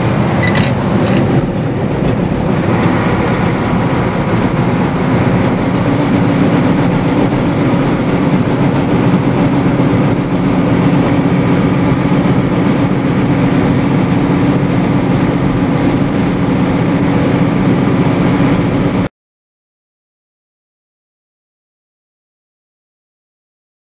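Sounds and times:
truck diesel engine drone: 0.0 - 19.1.

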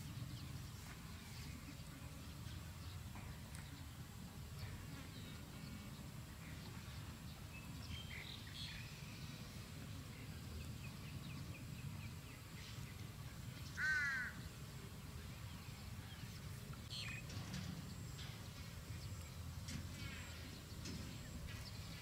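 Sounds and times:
loud animal call: 13.8 - 14.4.

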